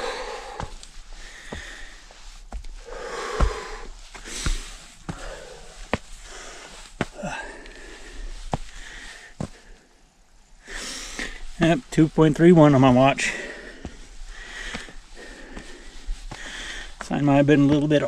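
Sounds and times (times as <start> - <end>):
person breathing hard: 0.0 - 10.0, 10.6 - 11.6, 13.2 - 17.0
footstep taps: 0.5 - 7.8, 8.5 - 9.8, 14.6 - 18.0.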